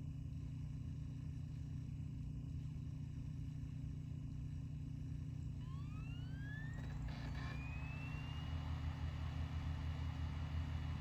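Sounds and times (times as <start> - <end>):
low hum: 5.5 - 11.0
optical drive spinning up: 5.5 - 11.0.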